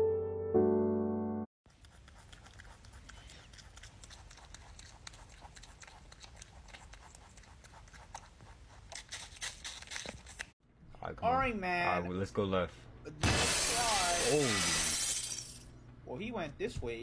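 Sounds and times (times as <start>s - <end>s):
rabbit crunching apple: 1.7s - 10.5s.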